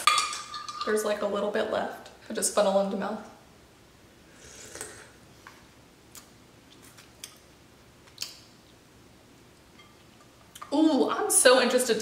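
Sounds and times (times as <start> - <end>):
person sipping and swallowing: 4.4 - 5.2.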